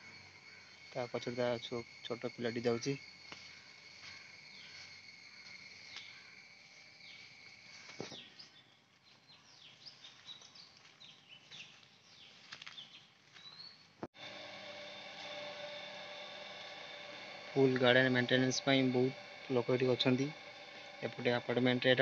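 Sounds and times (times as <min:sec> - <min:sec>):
high insect drone: 0:00.0 - 0:08.7, 0:14.1 - 0:22.0.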